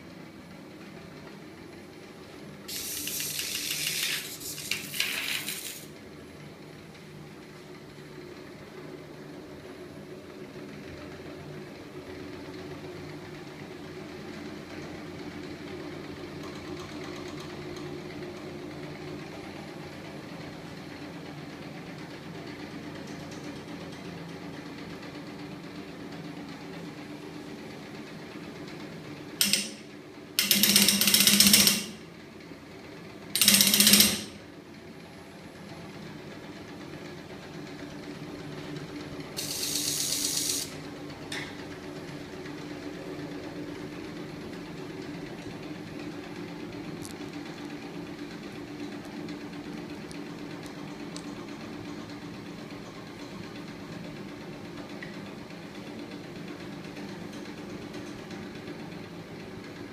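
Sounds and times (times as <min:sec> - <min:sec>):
electric motor humming: 0:02.7 - 0:05.9
rapid rattling burst: 0:02.7 - 0:05.9.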